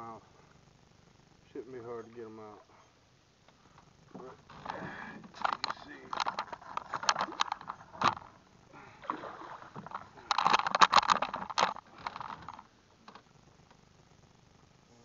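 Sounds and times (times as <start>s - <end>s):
fish splashing at water surface: 6.3s - 12.4s.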